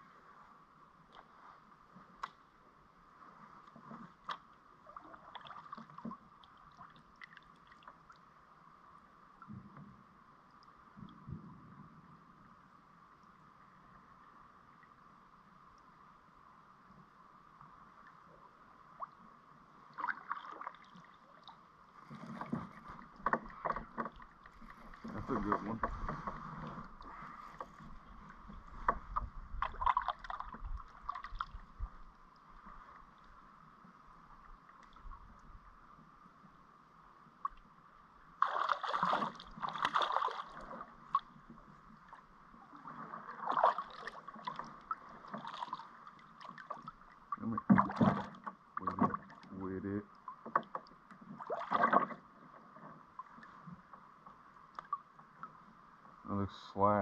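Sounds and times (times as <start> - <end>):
water splashing from thrashing fish: 38.4 - 40.8, 43.3 - 44.7.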